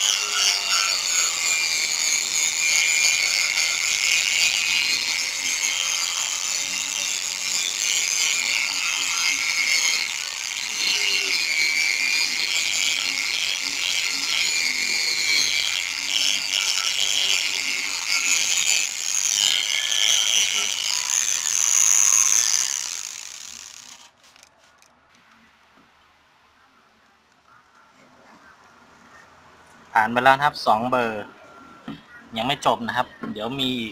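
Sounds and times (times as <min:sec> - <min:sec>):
power sander hissing: 0:00.0 - 0:24.4.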